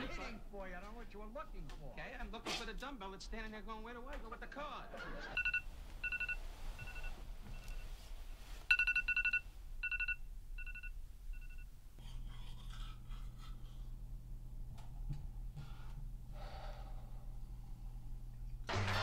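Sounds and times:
low steady hum: 0.0 - 19.0
faint rustling: 5.5 - 10.0.

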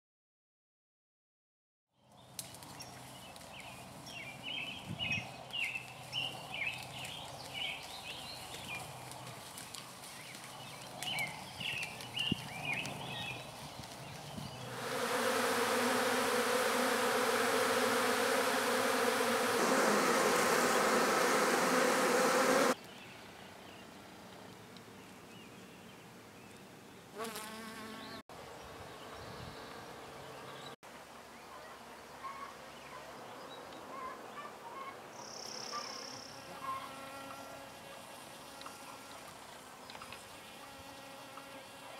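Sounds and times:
bees humming: 14.6 - 22.8.

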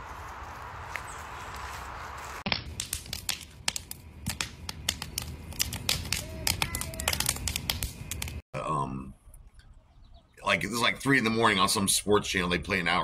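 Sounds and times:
wood fire crackling and popping: 2.4 - 8.4.

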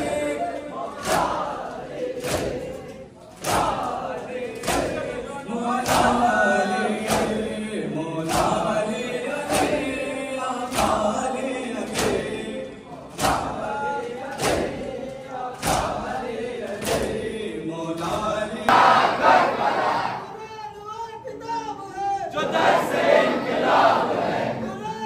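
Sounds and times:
crowd chanting in unison: 0.0 - 20.4, 22.3 - 24.9
collective chest slaps: 13.2 - 13.6, 14.4 - 14.9, 15.6 - 16.0.

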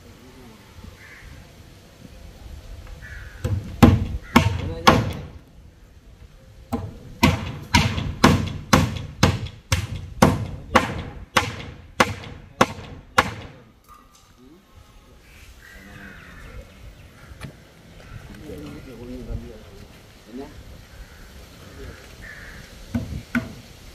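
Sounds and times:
hammer striking wooden boards: 3.4 - 5.4, 6.7 - 13.6, 22.9 - 23.6.

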